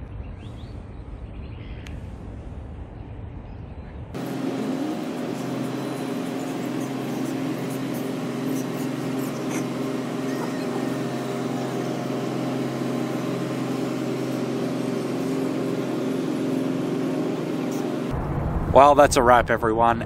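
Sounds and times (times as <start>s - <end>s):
ship engine drone: 4.2s - 19.0s.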